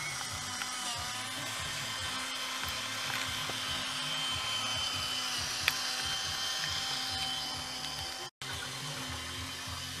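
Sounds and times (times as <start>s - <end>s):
faint disco music: 0.0s - 10.0s
toy train motor whirring: 0.0s - 10.0s.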